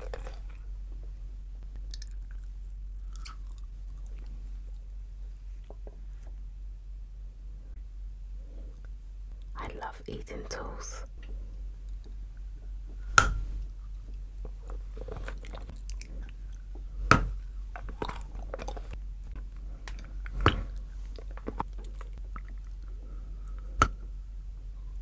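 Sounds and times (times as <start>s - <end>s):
close-up chewing: 0.0s - 0.6s, 1.6s - 5.0s, 13.6s - 23.7s
chocolate snapping: 23.5s - 24.0s.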